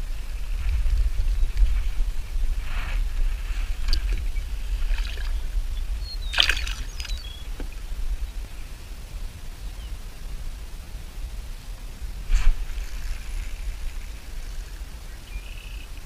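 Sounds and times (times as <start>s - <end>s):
wind rumble on microphone: 0.0s - 16.0s
fish splashing into water: 6.3s - 7.2s
small splashing and handling: 6.4s - 7.2s.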